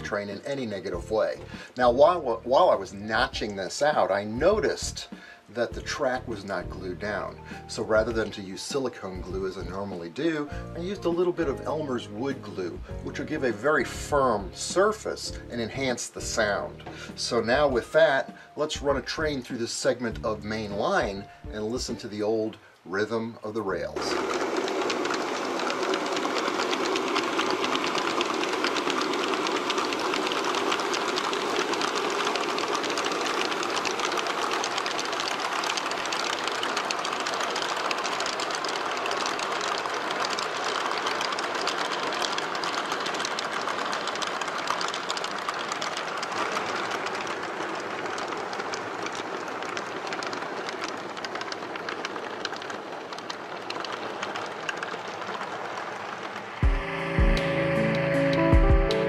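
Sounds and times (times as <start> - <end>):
model train wheels clickety-clack: 0.0 - 56.8
model train rumble: 0.0 - 58.9.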